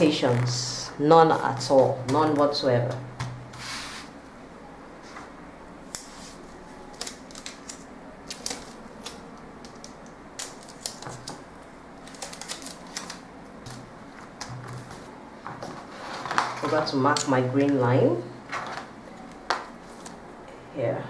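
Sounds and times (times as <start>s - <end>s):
faint steady hum: 0.0s - 21.0s
paper clicks and taps: 6.9s - 11.4s, 12.0s - 15.0s.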